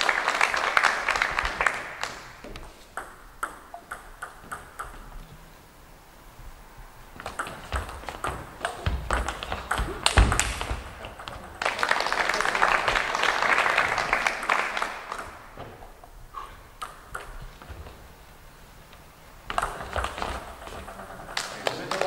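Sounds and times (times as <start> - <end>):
crowd applause: 0.0 - 2.4, 10.4 - 15.6, 21.2 - 22.0
ping-pong ball clicking: 2.9 - 5.2, 7.2 - 11.6, 16.8 - 17.5.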